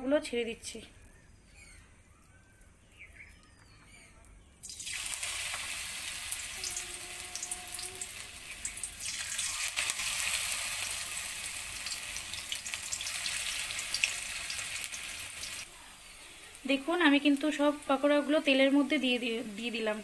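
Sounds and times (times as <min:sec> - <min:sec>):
pakoras sizzling in hot oil: 0:04.6 - 0:20.0.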